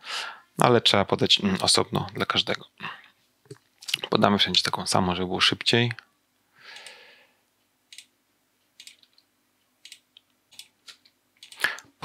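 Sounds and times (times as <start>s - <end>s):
keyboard and mouse clicks: 7.9s - 8.1s, 8.8s - 11.9s.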